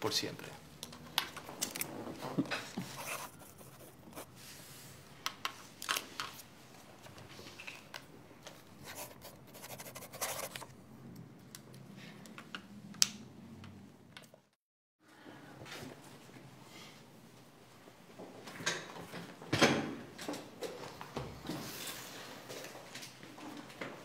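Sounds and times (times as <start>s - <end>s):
pen scratching on paper: 2.8s - 4.3s, 8.8s - 10.7s.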